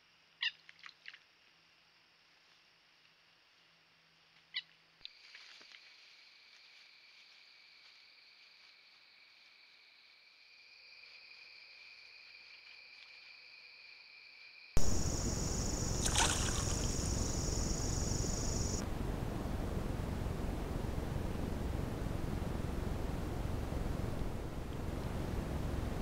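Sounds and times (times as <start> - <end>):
loud hiss with high tone: 14.8 - 18.8
faint high-pitched whine: 14.8 - 26.0.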